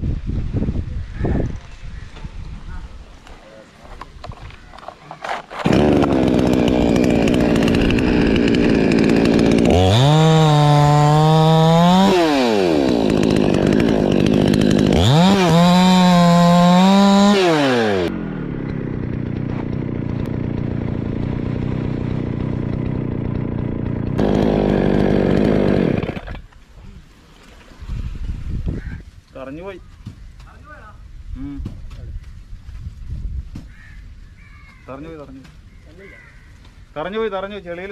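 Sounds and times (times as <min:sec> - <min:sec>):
chainsaw cutting wood: 0:04.3 - 0:26.6.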